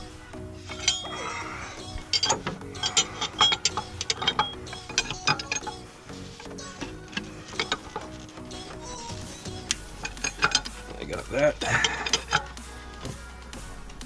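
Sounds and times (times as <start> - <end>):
background music: 0.0 - 14.0
metal tool clicking and clinking: 0.6 - 10.9, 11.6 - 12.6.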